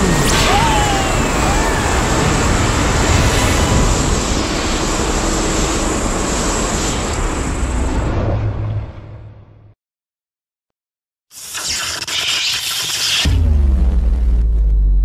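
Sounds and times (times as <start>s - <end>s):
dense rumbling noise: 0.0s - 9.7s.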